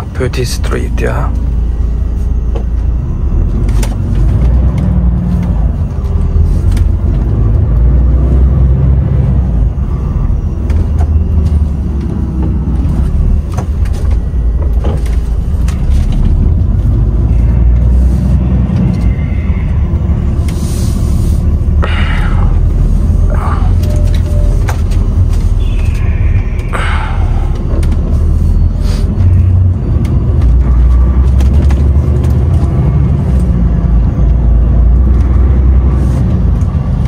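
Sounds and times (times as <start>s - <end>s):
truck engine and road rumble: 0.0s - 37.0s.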